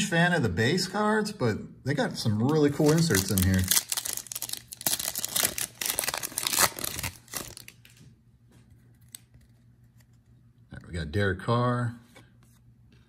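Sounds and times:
wrapper tearing and crinkling: 2.5 - 8.0.

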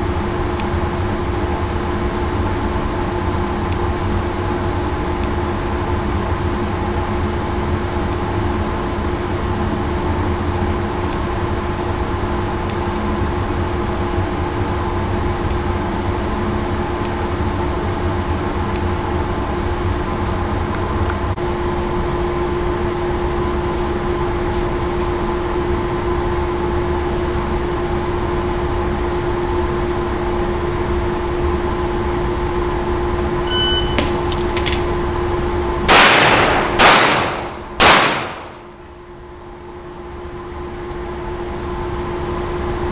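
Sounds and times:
ventilation hum: 0.0 - 42.9
pistol clicking on concrete floor: 33.9 - 35.0, 35.9 - 39.2.

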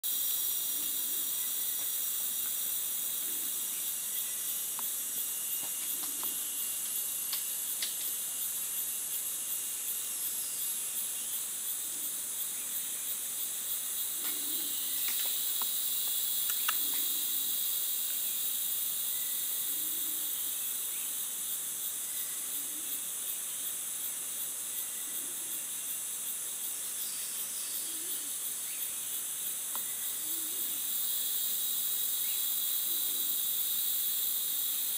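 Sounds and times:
insect chorus hissing: 0.0 - 34.9
faint ticks: 5.6 - 8.2, 15.0 - 17.1.

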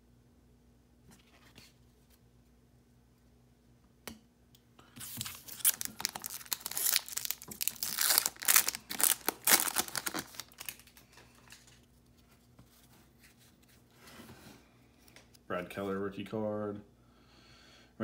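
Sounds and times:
foil wrapper crinkling and tearing: 5.0 - 11.8.

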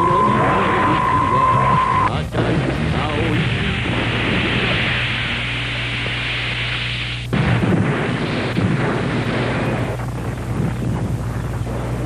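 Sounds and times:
deep rumbling explosion: 0.0 - 5.0, 7.3 - 12.0
hissing blast: 0.0 - 12.0.

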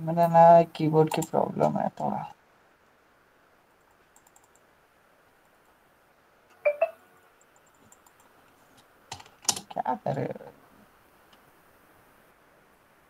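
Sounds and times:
low room hiss: 0.0 - 13.0
faint computer clicks: 3.8 - 4.7, 6.7 - 8.3.

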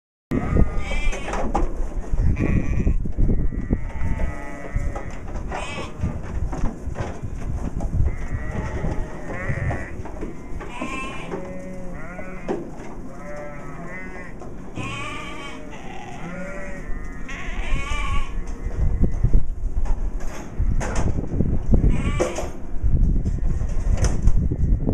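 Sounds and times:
sheep bleating: 2.2 - 6.0, 8.1 - 10.0, 10.6 - 12.5, 13.1 - 18.4.

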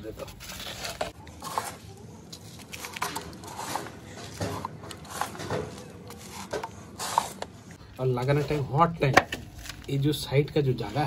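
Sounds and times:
soil scraping and rustling: 0.1 - 7.5.

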